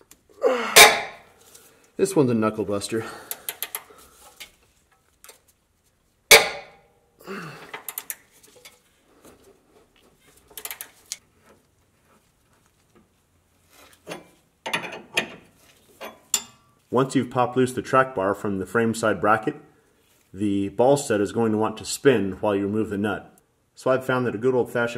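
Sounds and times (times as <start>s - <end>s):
sharp metallic clank: 0.8s - 1.2s, 6.3s - 6.9s
wrench clicking and clinking: 3.3s - 3.9s, 7.7s - 8.2s, 10.5s - 11.2s.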